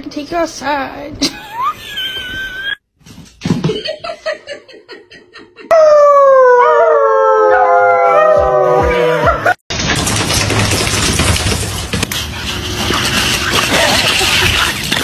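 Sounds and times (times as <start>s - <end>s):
long animal howl: 5.7s - 9.6s.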